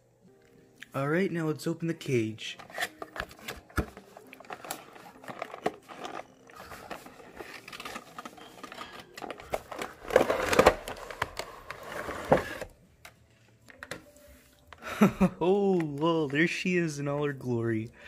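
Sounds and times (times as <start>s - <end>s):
plastic packaging crinkling: 2.7s - 12.7s.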